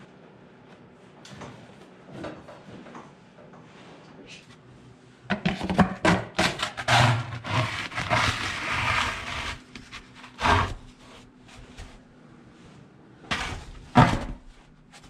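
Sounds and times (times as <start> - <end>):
plastic dustpan scraping wooden floor: 6.4 - 11.2.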